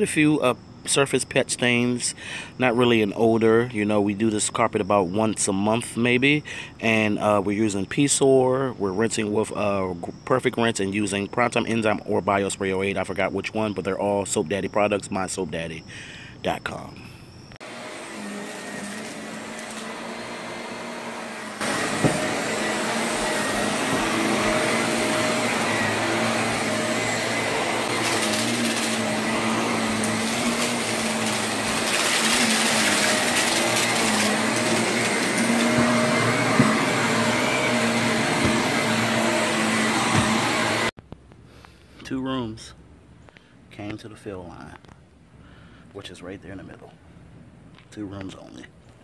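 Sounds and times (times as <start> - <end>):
vacuum cleaner on carpet: 17.6 - 41.0.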